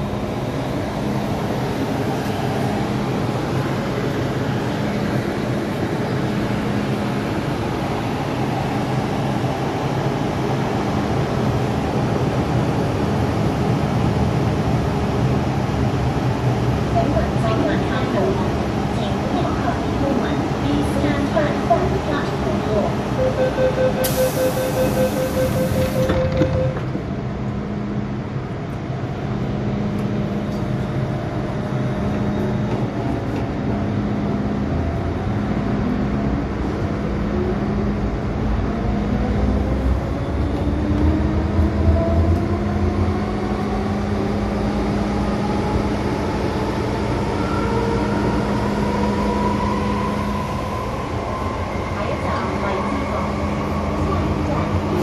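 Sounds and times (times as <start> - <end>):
train running gear rumble: 25.7 - 39.1.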